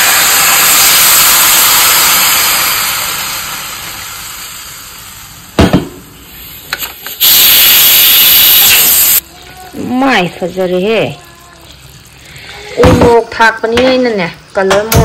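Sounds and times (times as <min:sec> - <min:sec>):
water pouring into pot: 0:00.0 - 0:05.6, 0:06.3 - 0:14.6
sharp knock: 0:05.6 - 0:06.0.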